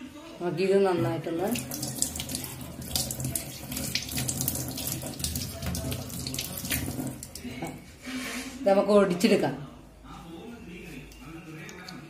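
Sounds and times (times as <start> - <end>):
tap water running into a sink: 1.4 - 7.7.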